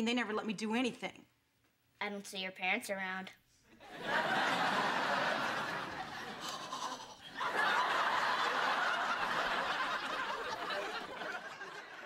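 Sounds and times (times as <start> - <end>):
studio audience laughing: 3.8 - 12.0.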